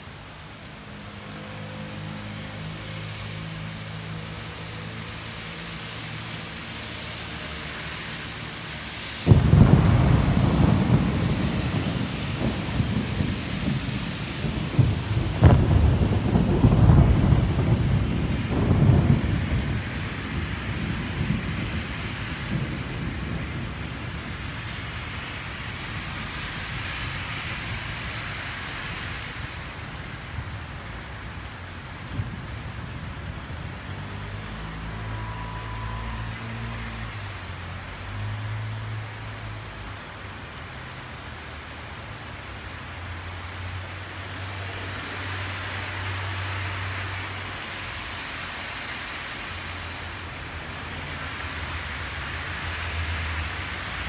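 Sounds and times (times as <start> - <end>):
steady rain: 0.0 - 54.0
thunder rumbling: 9.2 - 28.0, 29.5 - 38.0.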